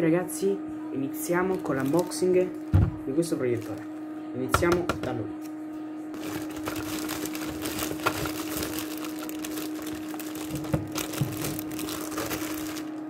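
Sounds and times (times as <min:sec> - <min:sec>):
steady hum: 0:00.0 - 0:13.0
plastic wrapping crinkling: 0:01.4 - 0:02.5, 0:03.5 - 0:03.9, 0:06.2 - 0:13.0.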